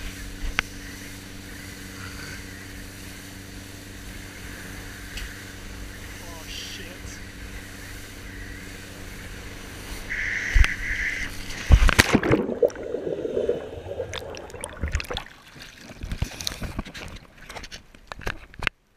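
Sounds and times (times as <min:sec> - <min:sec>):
muffled underwater churning: 0:09.0 - 0:16.8
water rushing past camera: 0:11.4 - 0:16.7
loud splash: 0:11.8 - 0:15.9
water dripping: 0:12.0 - 0:15.7.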